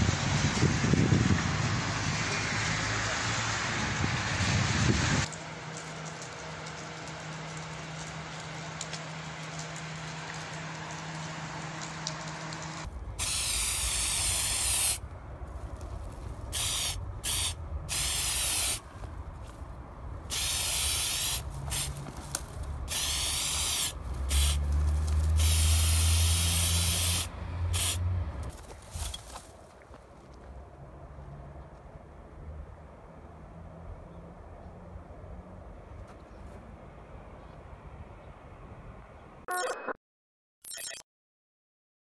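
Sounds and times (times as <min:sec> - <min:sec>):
spray paint can hissing: 0:13.2 - 0:15.0, 0:16.5 - 0:18.8, 0:20.3 - 0:22.0, 0:22.9 - 0:28.0.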